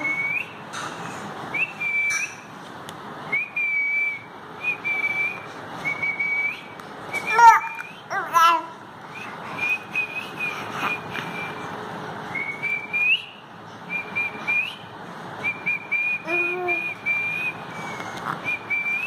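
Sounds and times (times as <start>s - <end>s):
baby cooing: 7.2s - 8.8s.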